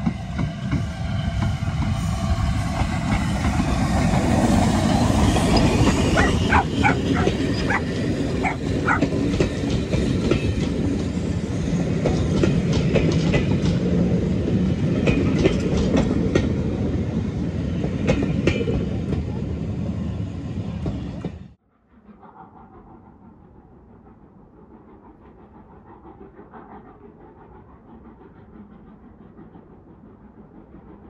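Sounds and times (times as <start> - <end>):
train coaches rumbling past: 0.0 - 21.6
wheels clicking over rail joints: 5.2 - 11.1.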